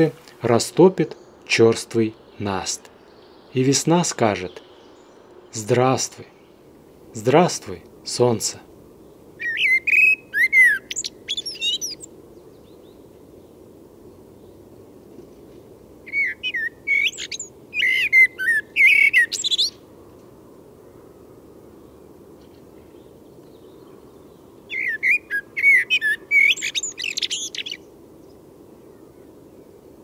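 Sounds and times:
blackbird singing: 0:09.0 - 0:13.5, 0:16.1 - 0:19.8, 0:22.8 - 0:29.3.

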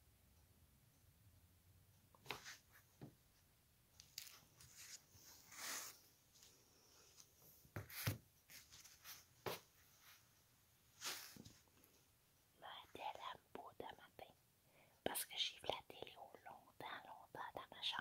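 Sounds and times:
hands stroking cat fur: 0:11.0 - 0:11.6.

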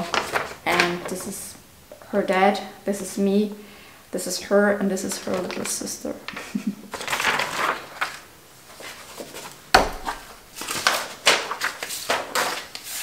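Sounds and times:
paper rustling and crinkling: 0:00.0 - 0:01.4, 0:05.0 - 0:13.0.

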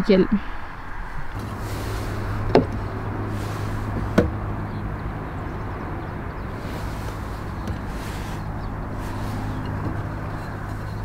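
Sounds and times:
low hum: 0:00.4 - 0:11.0
sharp knocks: 0:02.5 - 0:02.9, 0:03.9 - 0:04.4.

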